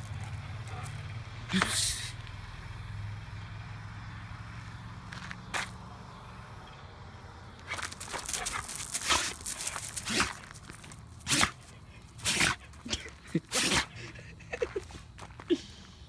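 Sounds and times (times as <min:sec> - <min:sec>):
dog sneezing: 0:10.0 - 0:10.4, 0:11.2 - 0:14.0.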